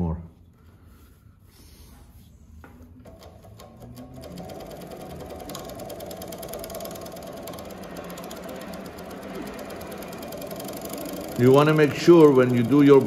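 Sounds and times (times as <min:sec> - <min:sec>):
industrial sewing machine stitching: 0:03.1 - 0:13.0.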